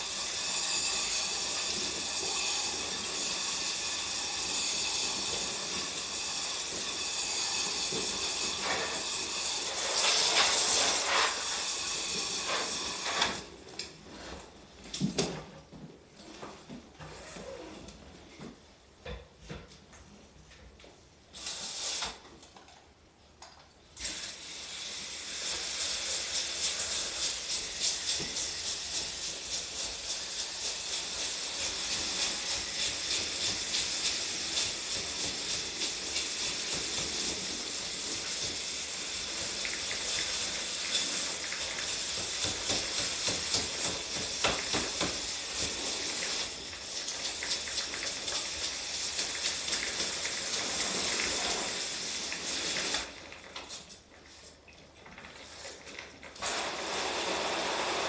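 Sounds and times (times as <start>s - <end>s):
hose water spray splashing: 7.8s - 13.4s, 24.0s - 53.9s.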